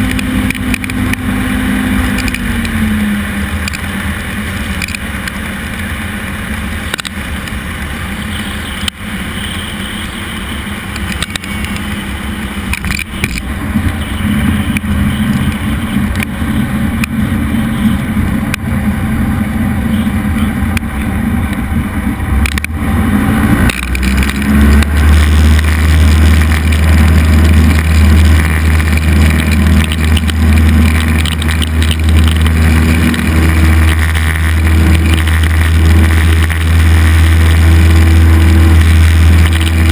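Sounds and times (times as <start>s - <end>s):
plane engine and propeller in cabin: 0.0s - 39.9s
strong low drone: 10.8s - 39.9s.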